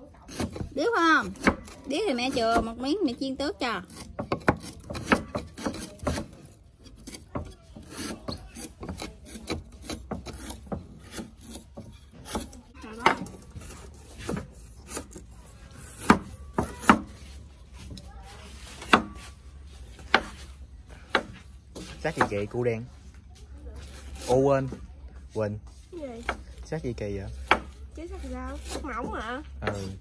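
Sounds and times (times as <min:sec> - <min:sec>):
knife slicing on wooden cutting board: 0:03.9 - 0:19.4.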